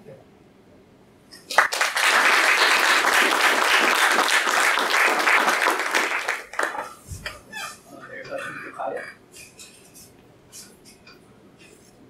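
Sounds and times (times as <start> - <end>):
audience applauding: 1.4 - 6.9.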